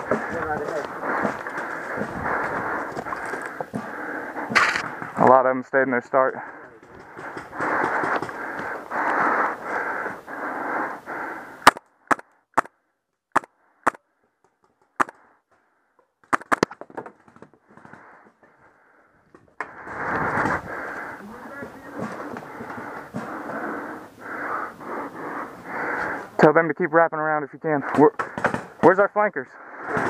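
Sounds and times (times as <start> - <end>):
heavy panting: 0.0 - 5.2, 6.2 - 11.6, 17.8 - 26.4
paintball marker shots: 11.6 - 12.7, 13.3 - 14.0, 14.7 - 15.2, 16.2 - 16.8.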